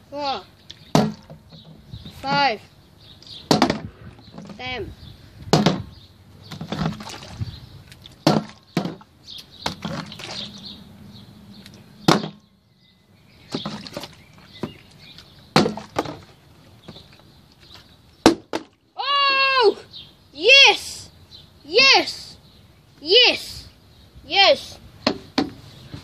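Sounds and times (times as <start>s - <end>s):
plastic bottle landing on wooden boards: 0.9s - 1.8s, 3.5s - 4.6s, 5.5s - 5.9s, 6.5s - 7.4s, 8.2s - 10.3s, 12.1s - 12.4s, 13.5s - 14.8s, 15.5s - 17.1s, 18.2s - 18.8s, 25.0s - 26.0s.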